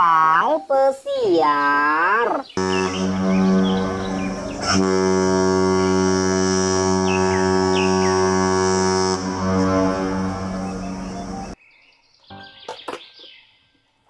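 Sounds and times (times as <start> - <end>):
ship's horn blast: 2.6 - 11.6.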